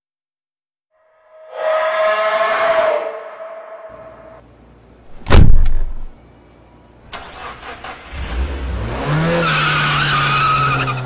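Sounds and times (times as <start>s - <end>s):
high wavering squeal: 1.0s - 4.4s
car engine starting and revving: 7.1s - 11.0s.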